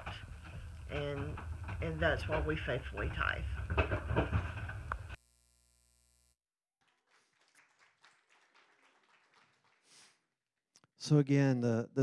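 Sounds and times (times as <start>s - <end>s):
soft knocks and rustles: 0.0s - 5.2s
recorded voice: 0.9s - 3.6s, 11.0s - 12.0s.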